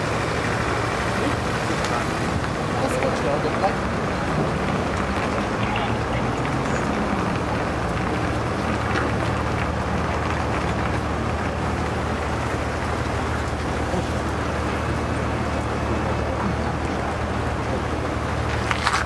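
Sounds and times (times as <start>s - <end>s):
truck diesel drone: 0.0s - 19.0s
tyre and road noise: 0.0s - 19.0s.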